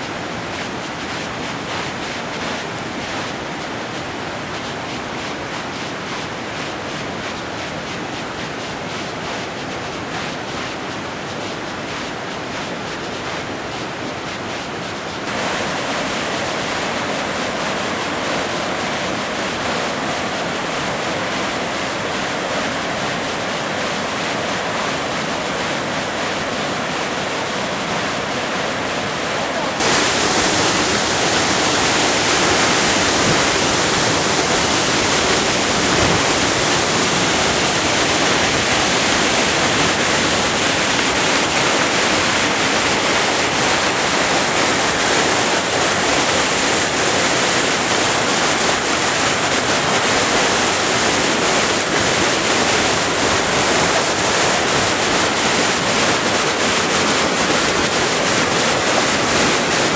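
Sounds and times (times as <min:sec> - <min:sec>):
water pouring down a waterfall: 0:15.2 - 0:27.2, 0:29.6 - 0:59.9
water spilling over a cascade: 0:29.8 - 0:59.9.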